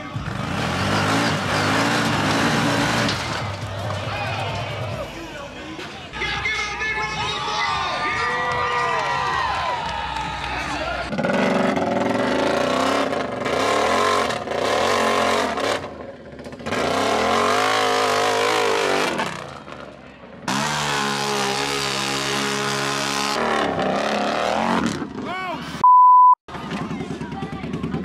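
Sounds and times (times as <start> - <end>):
atv engine revving: 0.0 - 5.0, 10.8 - 25.3.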